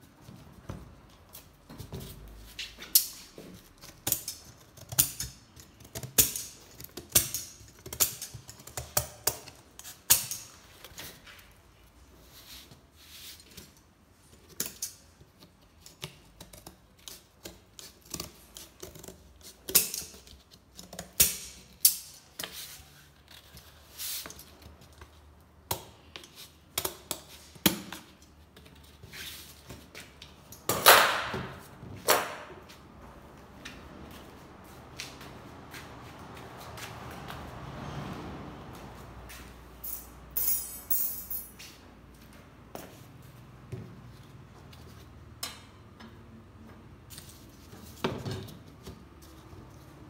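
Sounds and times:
scissors cutting cardboard: 3.1 - 10.4.

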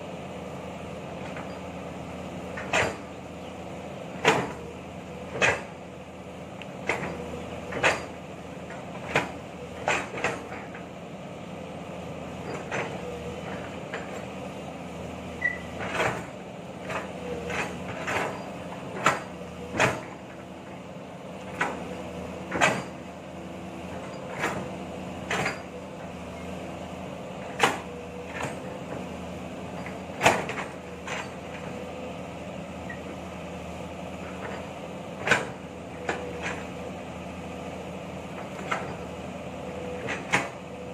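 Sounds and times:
diesel engine running: 0.0 - 40.9
excavator bucket clanking: 2.5 - 3.2, 6.8 - 10.8, 15.4 - 20.6, 21.4 - 25.9, 29.7 - 31.8, 39.9 - 40.7.

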